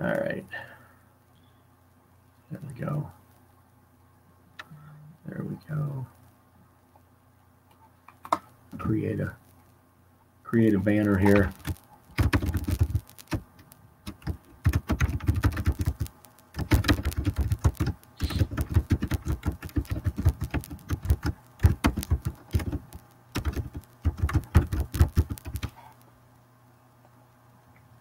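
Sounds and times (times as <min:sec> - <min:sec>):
typing on computer keyboard: 0:11.2 - 0:25.8.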